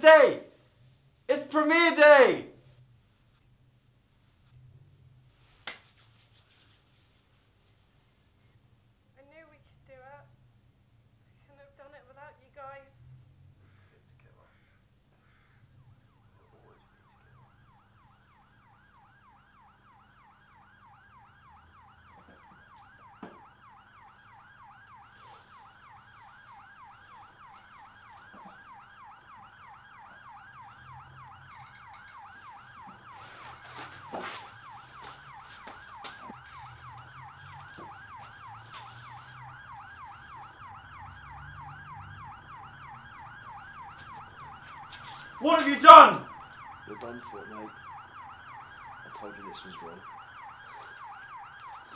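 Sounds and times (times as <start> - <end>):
police siren yelping: 0.0 - 0.6, 15.2 - 51.9.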